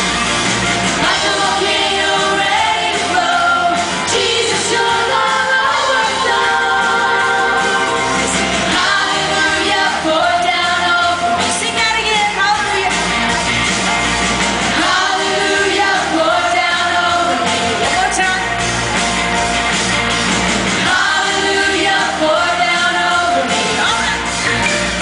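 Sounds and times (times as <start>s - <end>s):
children singing and shouting: 1.0s - 11.6s, 20.8s - 24.4s
worship song with singing: 1.0s - 11.6s, 14.7s - 18.4s, 20.8s - 24.3s.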